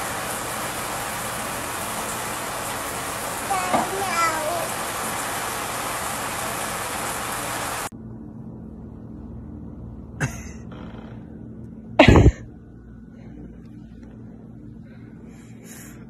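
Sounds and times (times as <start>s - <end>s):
person coughing: 10.2s - 10.6s, 12.0s - 12.5s.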